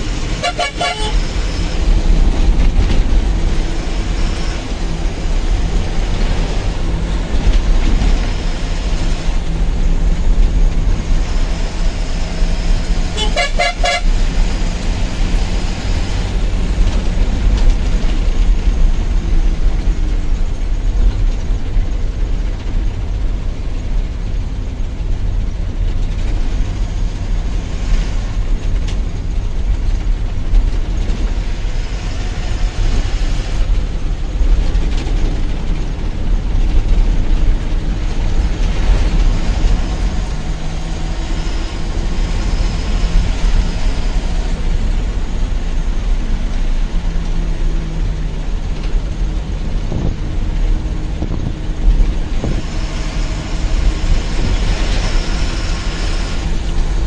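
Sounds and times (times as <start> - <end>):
truck engine and road rumble: 0.0 - 57.0
truck horns tooting: 0.1 - 1.8, 13.0 - 14.3
rapidly pulsed horn blast: 0.2 - 1.4, 13.1 - 14.2.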